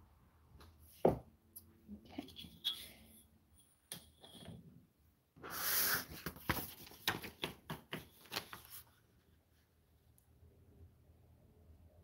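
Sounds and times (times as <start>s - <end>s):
paper crackling and crinkling: 6.1s - 9.0s.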